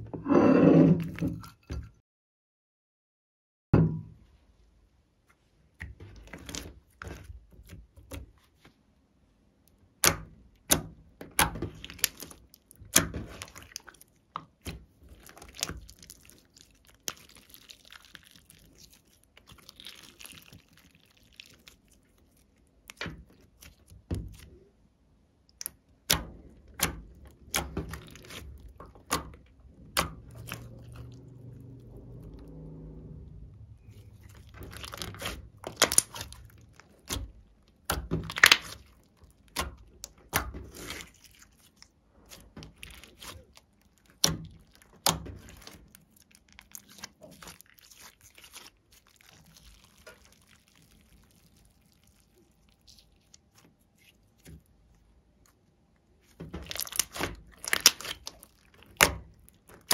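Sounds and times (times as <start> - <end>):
slime clicking and popping: 34.4 - 41.2, 56.5 - 59.9.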